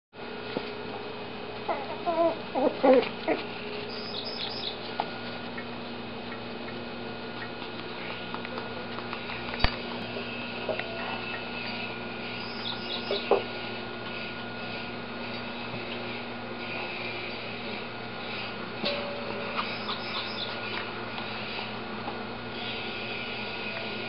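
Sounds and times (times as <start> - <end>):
steady background hum: 0.2 - 24.0
puppies squeaking: 1.7 - 4.8, 12.4 - 13.4, 19.6 - 20.8.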